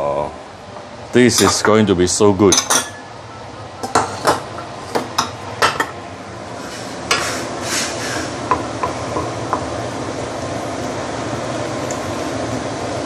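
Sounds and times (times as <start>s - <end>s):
steady hiss of cooking: 0.0s - 13.0s.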